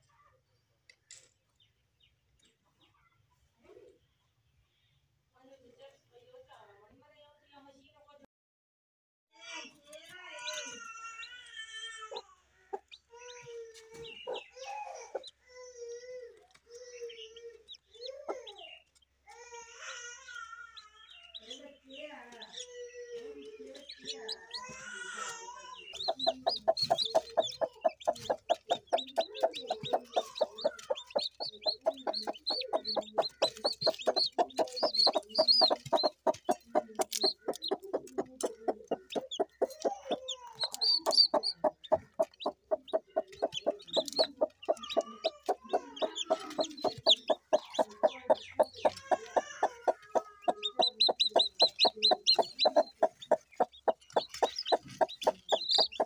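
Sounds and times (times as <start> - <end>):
chicks peeping: 10.3 - 20.0, 20.7 - 56.0
hen clucking: 14.0 - 15.3, 21.3 - 56.0.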